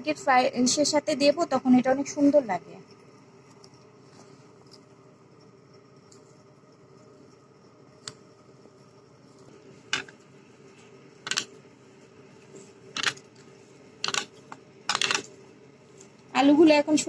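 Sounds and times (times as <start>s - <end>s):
potatoes mashed on plastic plate: 11.2s - 11.5s, 14.0s - 15.3s.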